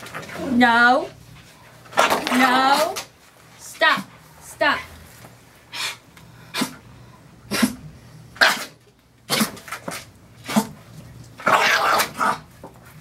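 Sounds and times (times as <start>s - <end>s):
dog vocal outbursts: 7.5s - 10.8s, 11.4s - 12.5s.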